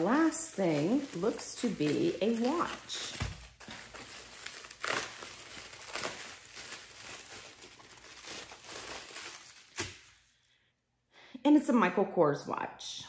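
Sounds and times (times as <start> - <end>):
bubble wrap crinkling: 0.0 - 10.4
bubble wrap sharp crack: 0.0 - 10.4.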